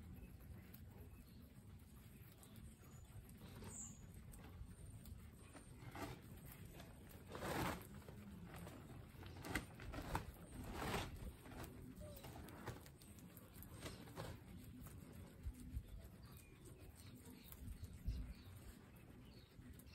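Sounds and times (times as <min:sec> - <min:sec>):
guinea pigs munching grass: 0:00.0 - 0:19.9
rustling of grass blades: 0:03.2 - 0:19.9.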